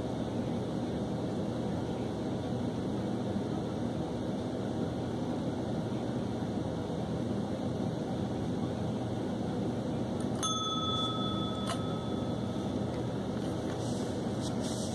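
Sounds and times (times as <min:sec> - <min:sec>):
low background hum: 0:00.0 - 0:14.9
service bell ding: 0:10.4 - 0:12.9.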